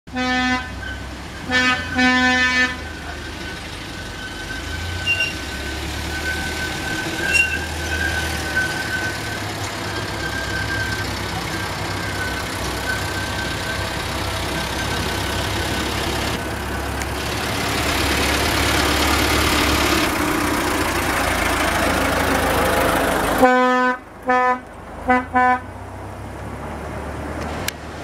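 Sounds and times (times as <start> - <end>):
miniature train engine whining: 2.0 - 22.7.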